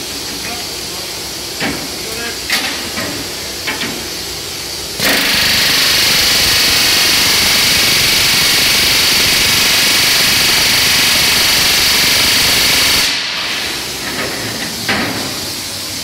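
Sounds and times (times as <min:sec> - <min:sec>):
pneumatic rivet gun rattling: 0:05.0 - 0:14.3.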